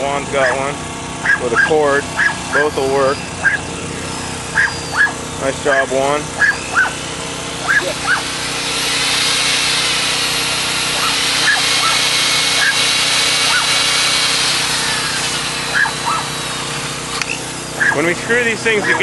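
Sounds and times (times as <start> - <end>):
electric drill driving screw into steel: 6.4 - 18.0.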